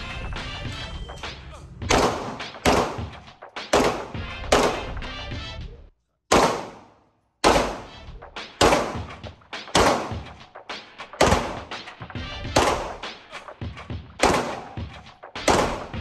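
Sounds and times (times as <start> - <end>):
echoing pistol shots: 1.8 - 3.1, 3.7 - 5.0, 6.3 - 8.0, 8.6 - 10.2, 11.2 - 11.7, 12.5 - 13.1, 14.2 - 16.0.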